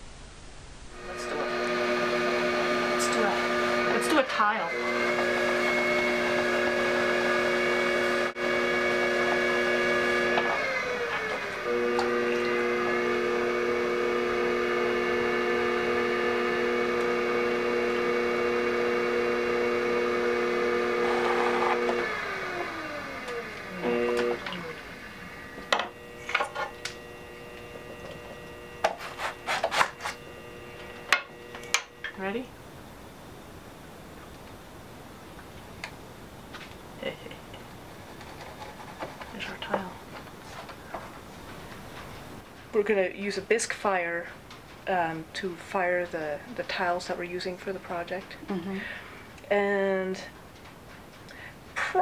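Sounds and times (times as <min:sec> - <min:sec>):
potter's wheel motor whining: 0:01.0 - 0:32.3.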